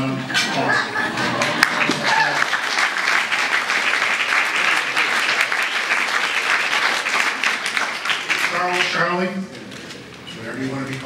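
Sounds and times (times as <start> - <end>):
crowd applauding: 1.1 - 9.2.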